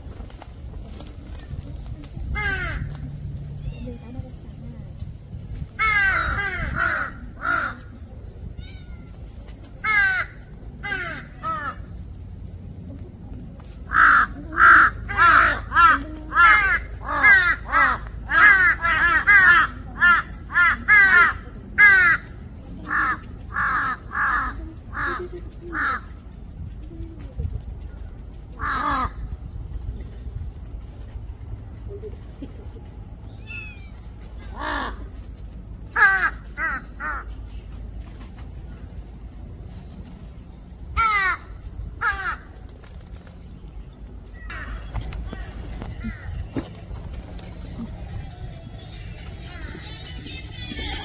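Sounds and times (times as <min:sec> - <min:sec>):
crows cawing: 0:02.4 - 0:02.9, 0:05.8 - 0:07.9, 0:09.8 - 0:11.9, 0:13.9 - 0:26.1, 0:28.6 - 0:29.2, 0:35.9 - 0:37.3, 0:41.0 - 0:42.5.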